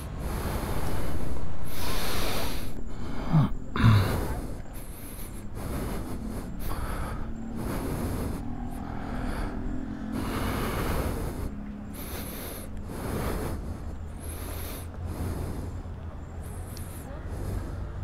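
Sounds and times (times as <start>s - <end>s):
wind noise on microphone: 0.0s - 3.0s
motorcycle engine at low revs: 0.0s - 18.0s.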